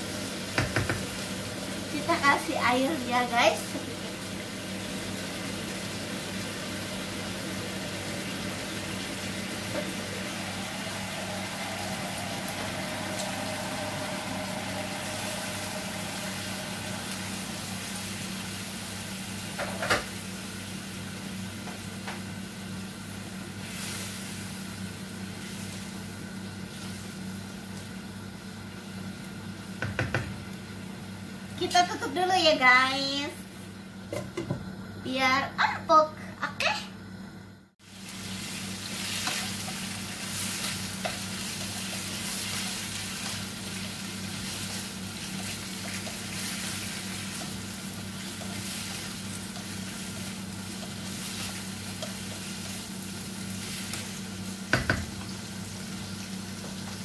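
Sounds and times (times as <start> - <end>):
livers sizzling in frying pan: 0.0 - 34.2, 37.8 - 57.0.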